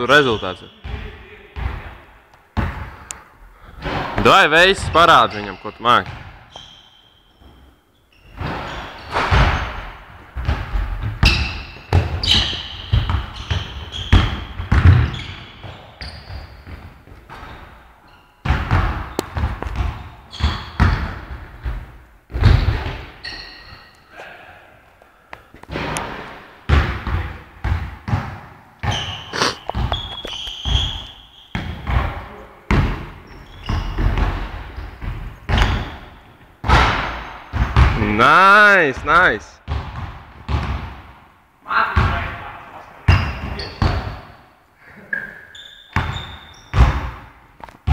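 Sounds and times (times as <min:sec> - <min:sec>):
shoe squeaks: 0:00.1 - 0:01.0, 0:06.5 - 0:09.9, 0:11.2 - 0:21.2, 0:23.1 - 0:24.1, 0:28.8 - 0:31.9, 0:33.2 - 0:36.4, 0:43.1 - 0:44.1, 0:45.0 - 0:46.9
basketball bouncing on court: 0:00.8 - 0:02.0, 0:02.6 - 0:03.0, 0:06.0 - 0:06.8, 0:08.4 - 0:17.7, 0:18.4 - 0:23.4, 0:25.7 - 0:38.1, 0:39.6 - 0:41.2, 0:42.0 - 0:42.3, 0:43.1 - 0:44.3, 0:45.9 - 0:47.9.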